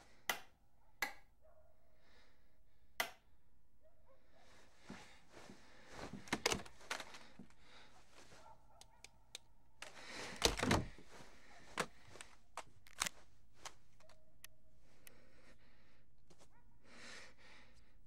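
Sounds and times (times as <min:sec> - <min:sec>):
phone clicks: 0:06.0 - 0:07.5, 0:08.8 - 0:14.6
phone handling thump: 0:06.1 - 0:07.3, 0:09.9 - 0:13.1.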